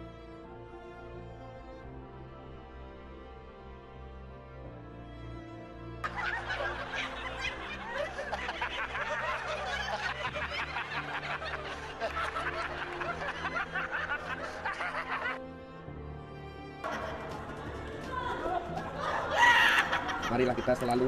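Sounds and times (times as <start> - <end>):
slow background music: 0.0 - 21.0
people laughing: 6.0 - 15.4, 16.8 - 21.0.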